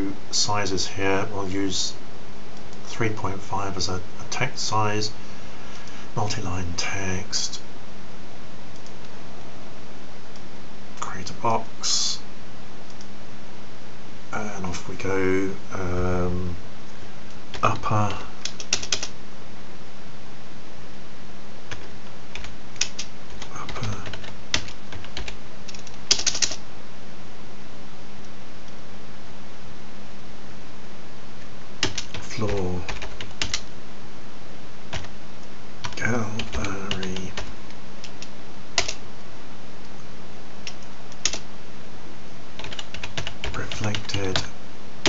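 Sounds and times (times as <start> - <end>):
steady hum and hiss: 0.0 - 45.0
keyboard typing: 18.4 - 19.1, 21.7 - 26.6, 31.8 - 33.7, 34.9 - 35.1, 35.8 - 39.0, 40.6 - 41.4, 42.6 - 44.5.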